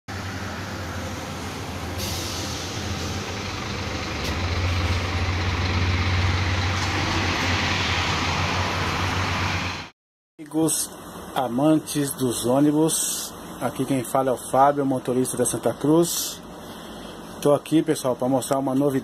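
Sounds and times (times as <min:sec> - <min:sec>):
bus diesel engine hum: 0:00.1 - 0:09.9, 0:10.7 - 0:19.0
road noise: 0:00.1 - 0:09.9, 0:10.5 - 0:19.0
hiss: 0:01.9 - 0:03.1.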